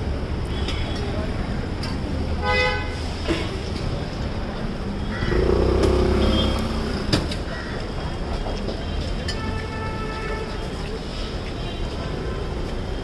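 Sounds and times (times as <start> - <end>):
road traffic rumble: 0.0 - 13.0
vehicle engine revving: 5.2 - 7.4.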